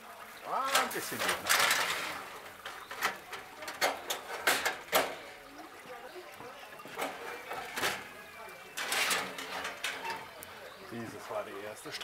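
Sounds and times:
metal grill tray sliding: 0.7 - 5.2, 7.0 - 10.6.

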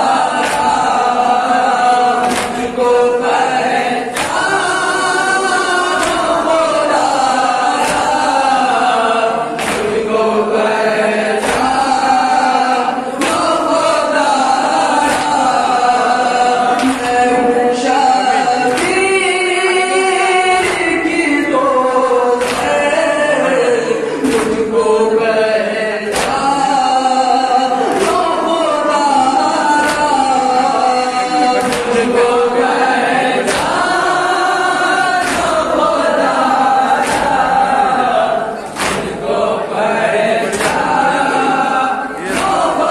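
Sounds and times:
hands slapping chests: 0.0 - 8.9, 9.5 - 10.2, 11.3 - 12.1, 13.1 - 14.0, 14.7 - 15.9, 16.6 - 17.4, 18.6 - 19.2, 20.5 - 21.3, 22.4 - 23.0, 24.2 - 24.9, 26.0 - 26.9, 27.8 - 28.5, 29.8 - 30.4, 31.6 - 39.4, 40.4 - 41.6, 42.2 - 42.9
group chorus singing: 0.0 - 42.9
men singing a lament in unison: 0.0 - 42.9.

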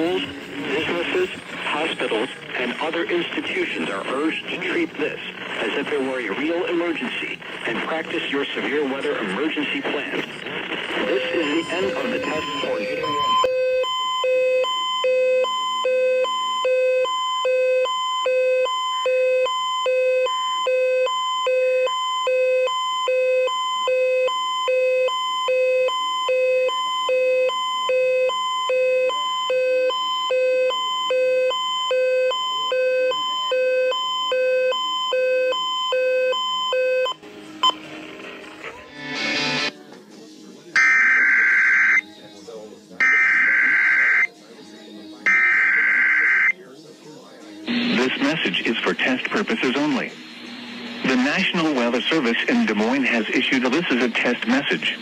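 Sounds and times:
two-pitch electronic alarm beeping: 11.0 - 37.8, 45.3 - 46.6.

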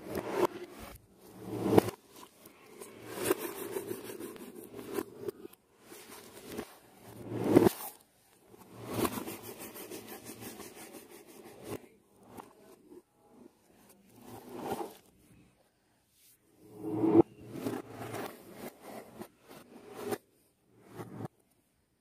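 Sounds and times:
cardboard and tape scraping: 0.1 - 8.0, 8.6 - 11.8.

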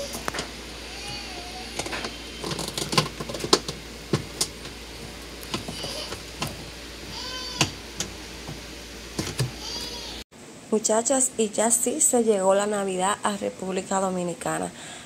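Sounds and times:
plastic clicks and knocks: 9.2 - 9.5.

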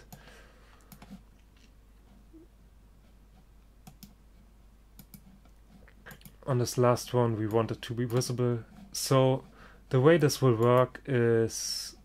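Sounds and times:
faint computer mouse clicks: 3.8 - 4.2, 5.0 - 6.4.

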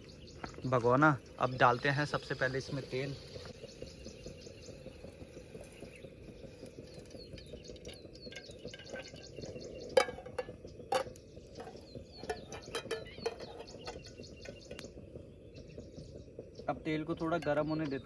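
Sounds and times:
birds chirping: 0.0 - 18.0
light taps on pot: 4.7 - 15.2
metal pot knocking: 6.9 - 15.0.

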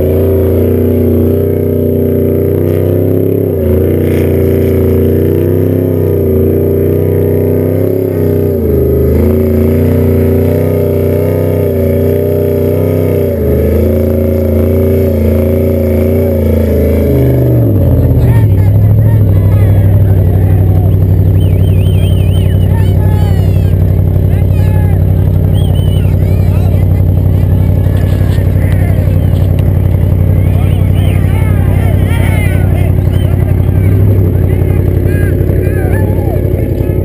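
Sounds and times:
race engine at high revs: 0.0 - 37.0
wheels spinning in loose dirt: 21.2 - 37.0.

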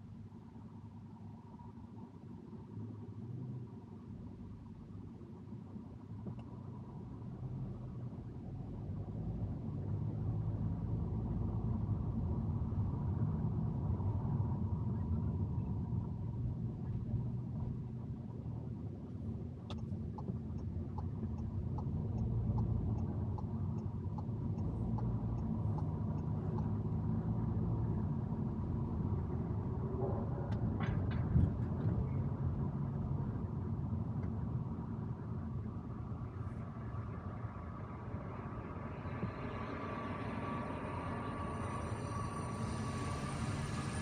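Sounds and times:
car engine and tyres rumble: 0.0 - 44.0.

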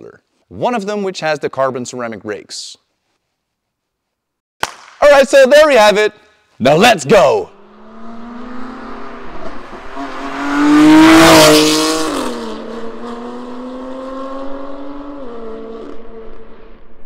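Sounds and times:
car accelerating past: 7.5 - 17.0.

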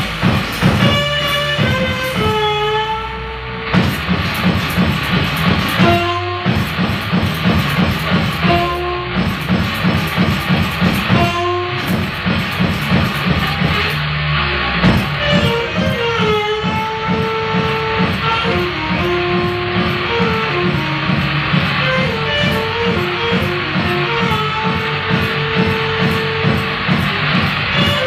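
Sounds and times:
steady drum beat: 0.0 - 28.0.

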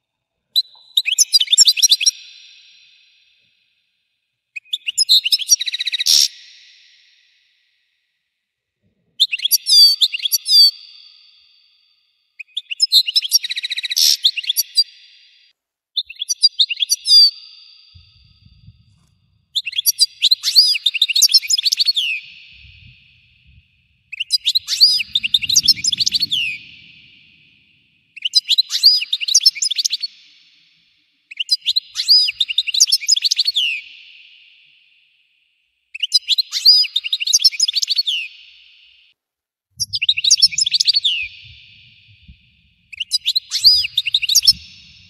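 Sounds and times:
goldfinch twittering song: 19.6 - 30.2, 39.8 - 45.0.

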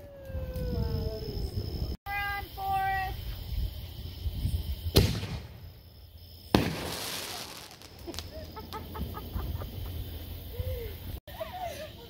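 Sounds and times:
fireworks crackling hiss: 0.0 - 12.0
fireworks bangs: 4.9 - 9.8.

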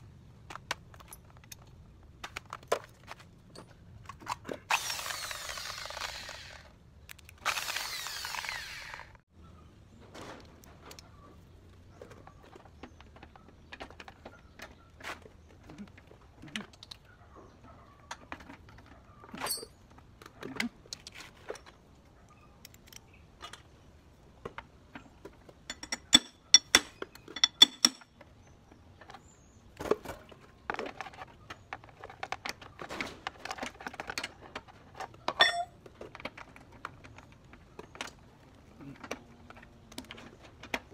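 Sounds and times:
hand tools clicking and knocking: 24.4 - 29.2, 30.7 - 40.9.

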